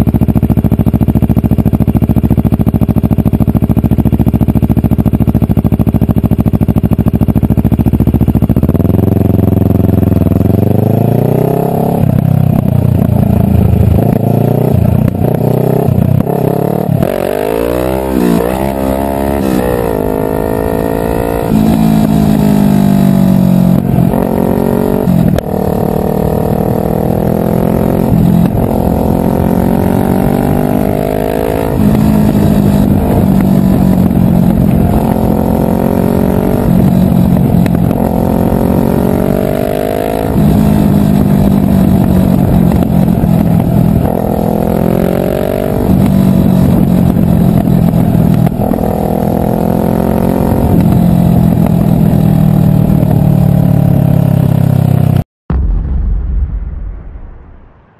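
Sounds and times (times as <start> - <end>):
motorcycle engine accelerating: 0.0 - 56.1.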